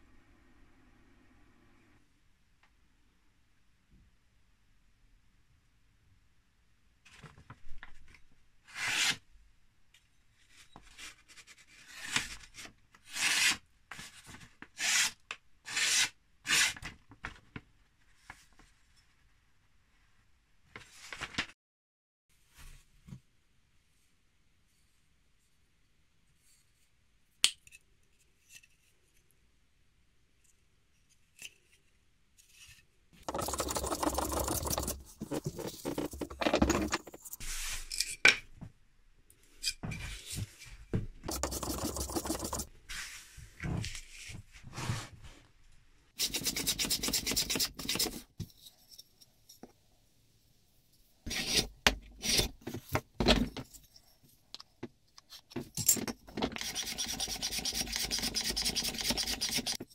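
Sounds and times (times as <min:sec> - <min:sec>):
hand tool scraping on wood: 0:33.2 - 0:37.6, 0:46.2 - 0:48.2, 0:51.3 - 0:52.6.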